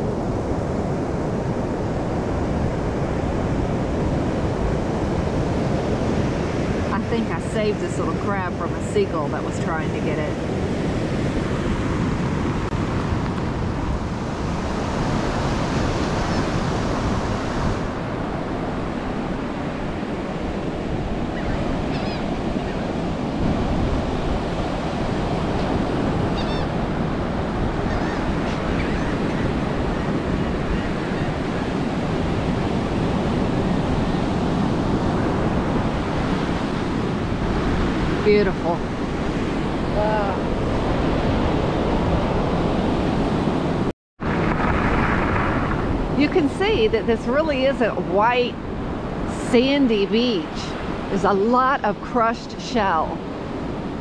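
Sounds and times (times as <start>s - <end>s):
ocean surf breaking: 0.0s - 54.0s
wind on microphone: 0.0s - 54.0s
gull calls: 21.3s - 23.0s, 25.5s - 26.8s, 27.8s - 31.8s.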